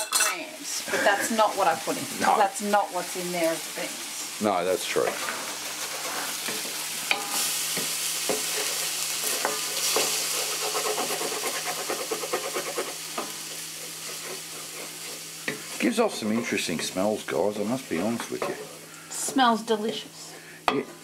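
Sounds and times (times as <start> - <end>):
food sizzling in fry pan: 0.0 - 21.0
wooden spatula scraping: 4.9 - 6.8, 8.3 - 17.1.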